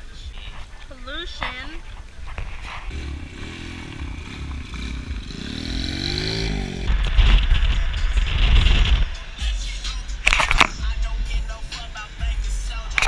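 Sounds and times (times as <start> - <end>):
wind and road noise from car: 0.0 - 13.0
quad bike engine revving: 2.5 - 9.2.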